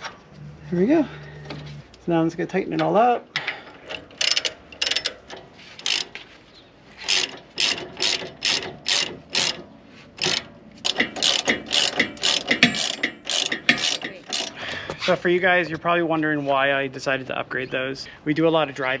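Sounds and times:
ratchet wrench clicking: 0:03.8 - 0:06.2, 0:07.0 - 0:09.6, 0:10.2 - 0:14.6.

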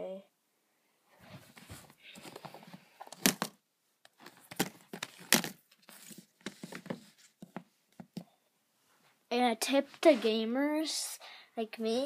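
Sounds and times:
plastic cases clicking and knocking: 0:02.2 - 0:05.6.

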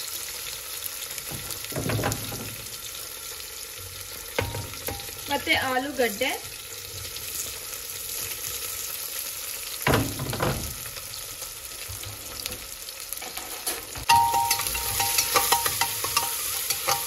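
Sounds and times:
onion and potato sizzling in oil: 0:00.0 - 0:17.0
spoon scraping a pot: 0:13.2 - 0:17.0.

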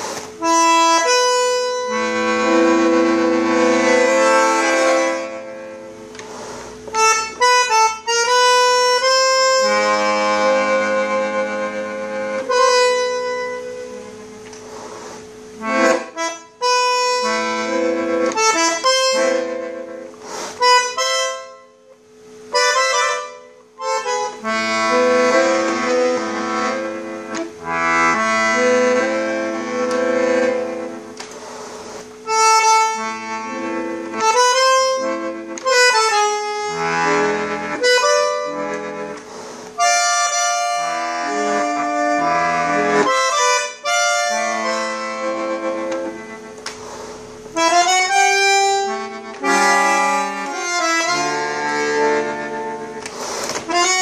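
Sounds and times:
bandoneon playing chords and melody: 0:00.0 - 0:54.0
bellows drawn and pushed: 0:53.0 - 0:54.0.

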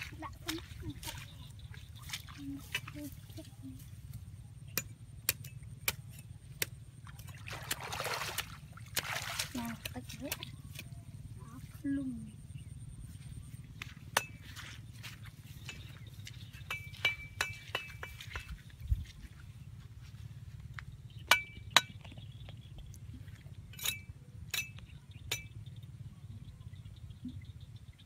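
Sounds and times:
light ringing clinks: 0:16.6 - 0:18.5, 0:23.6 - 0:25.7.

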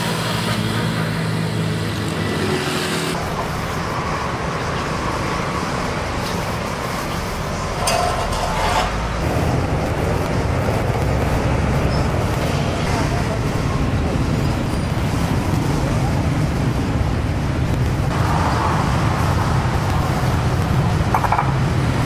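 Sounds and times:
road traffic noise: 0:00.0 - 0:22.0.

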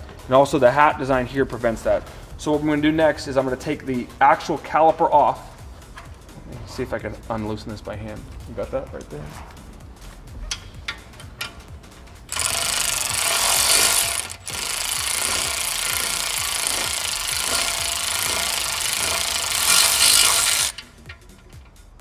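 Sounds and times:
electric ratchet running: 0:12.2 - 0:21.7.

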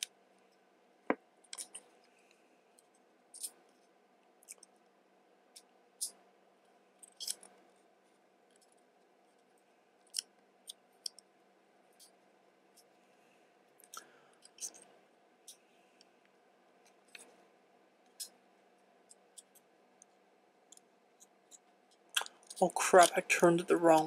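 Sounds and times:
small plastic parts clicking: 0:01.5 - 0:01.9, 0:02.8 - 0:03.6, 0:07.0 - 0:07.6, 0:20.7 - 0:23.1.

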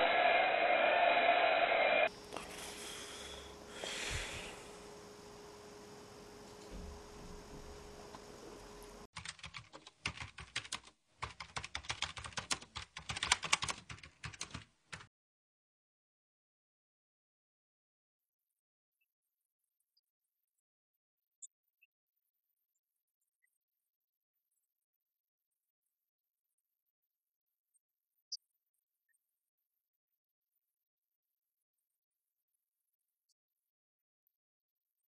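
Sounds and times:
loud sound: 0:00.0 - 0:02.8
keyboard typing clicks: 0:09.2 - 0:15.1.

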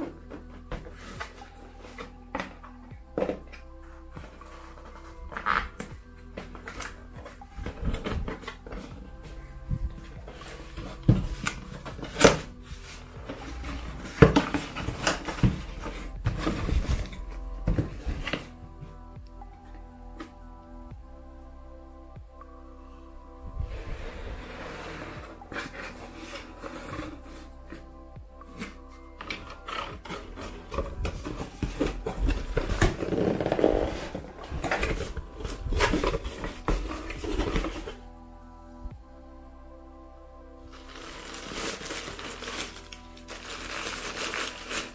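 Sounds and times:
cardboard scraping rustle: 0:09.7 - 0:18.5, 0:23.7 - 0:27.8, 0:28.5 - 0:38.0, 0:40.7 - 0:44.9.

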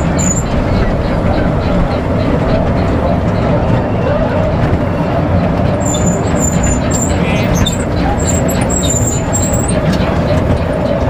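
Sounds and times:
short high squeaks: 0:00.0 - 0:00.5, 0:05.8 - 0:09.8
amusement ride rumbling: 0:00.0 - 0:11.0.

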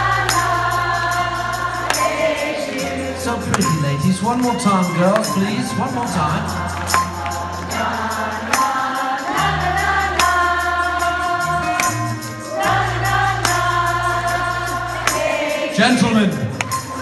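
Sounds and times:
women singing along in chorus: 0:00.0 - 0:03.2, 0:07.0 - 0:15.8.

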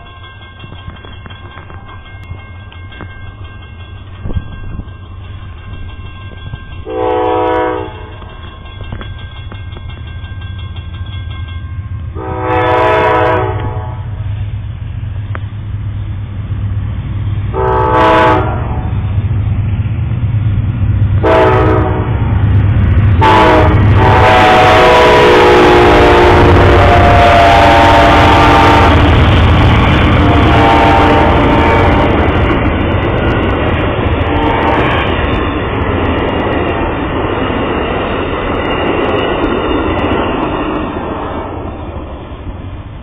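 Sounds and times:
crossing bell ringing: 0:00.0 - 0:13.3
train rumbling: 0:00.0 - 0:43.0
locomotive horn blasts: 0:06.8 - 0:08.2, 0:12.2 - 0:14.1, 0:17.5 - 0:18.9, 0:21.2 - 0:22.2, 0:23.2 - 0:29.2, 0:30.2 - 0:32.2.

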